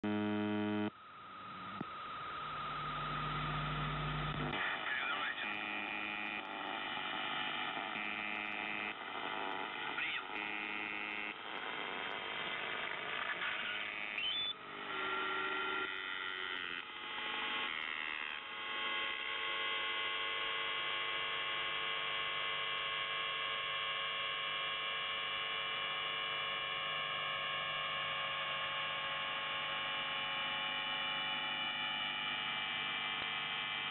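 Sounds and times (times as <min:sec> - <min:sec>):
shifting radio tones: 0:00.0 - 0:15.1
electrical hum: 0:00.0 - 0:17.0
radio buzz: 0:00.0 - 0:23.9, 0:24.5 - 0:33.9
rising whistle: 0:14.2 - 0:14.6.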